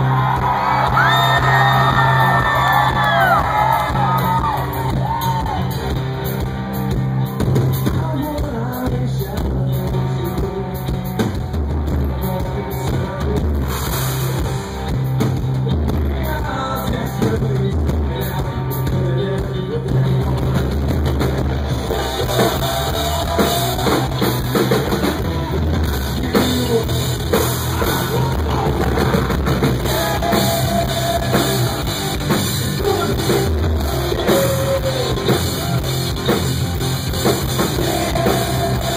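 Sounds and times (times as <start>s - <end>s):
bass guitar: 0.0s - 38.9s
drum kit beat: 0.0s - 38.9s
person singing: 7.7s - 11.4s, 21.8s - 36.4s, 37.3s - 38.9s.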